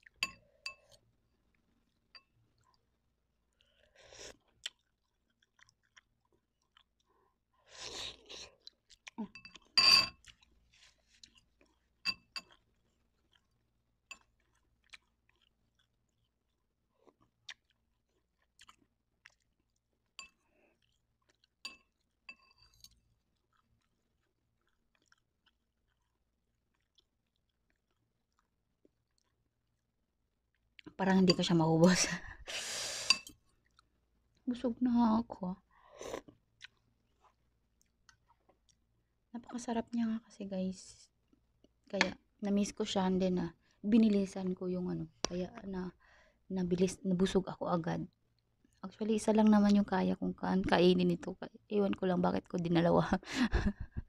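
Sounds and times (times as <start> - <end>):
person chewing noodles: 0.0 - 30.9, 32.6 - 34.4, 35.8 - 39.2.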